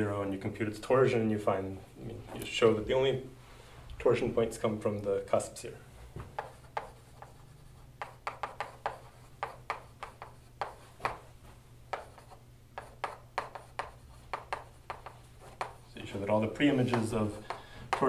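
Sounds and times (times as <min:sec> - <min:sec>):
steady low hum: 0:00.0 - 0:18.0
chalk writing on a blackboard: 0:06.3 - 0:18.0.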